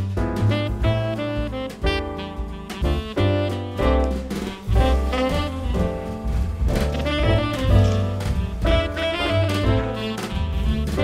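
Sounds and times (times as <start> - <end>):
instrumental jazz music: 0.0 - 11.0.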